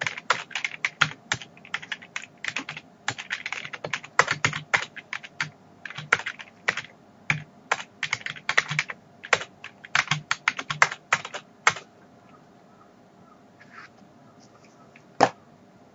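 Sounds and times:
computer keyboard typing: 0.0s - 11.9s.

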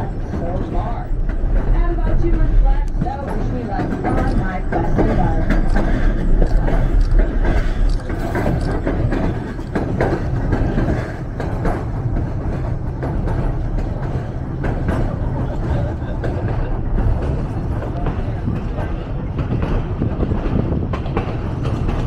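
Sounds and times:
clicks and knocks of train: 0.0s - 22.0s
train wheels rumbling: 0.0s - 22.0s.

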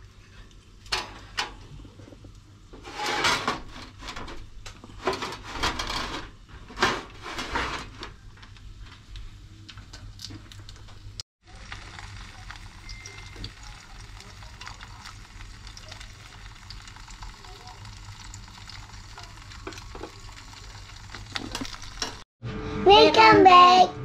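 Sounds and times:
metal grill drawer scraping: 2.8s - 8.1s.

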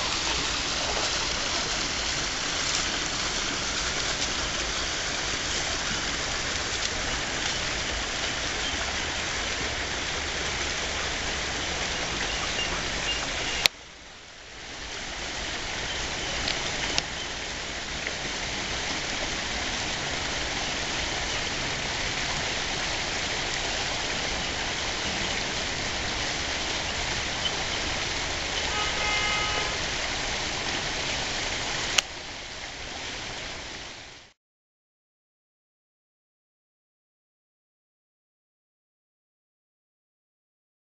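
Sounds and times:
rushing hiss: 0.0s - 13.7s.

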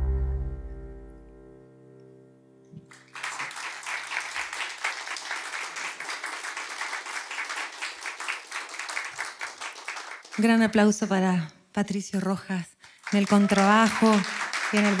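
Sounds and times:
audience applause: 2.8s - 10.5s, 12.9s - 15.0s.

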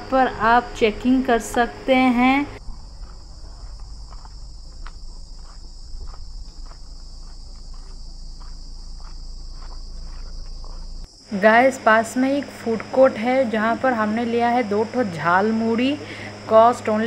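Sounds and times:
footsteps on dirt: 2.6s - 11.1s
high-pitched insect chorus: 2.6s - 17.0s.

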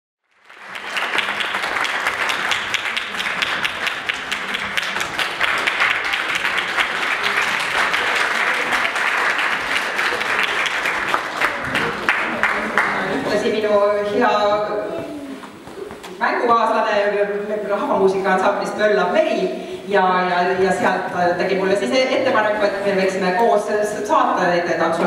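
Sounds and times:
audience applauding: 0.3s - 13.6s.

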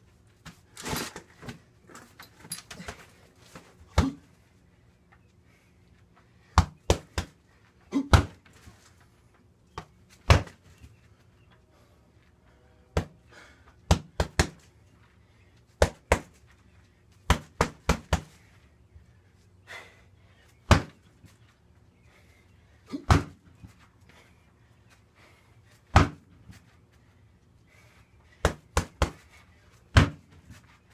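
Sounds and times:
punches and kicks hitting punching bag: 3.9s - 4.3s, 6.6s - 7.4s, 8.0s - 8.5s, 10.2s - 10.6s, 13.0s - 13.2s, 13.9s - 14.6s, 15.8s - 16.4s, 17.3s - 18.4s, 20.7s - 21.0s, 22.9s - 23.4s, 25.9s - 26.3s, 28.4s - 29.2s, 29.9s - 30.4s.

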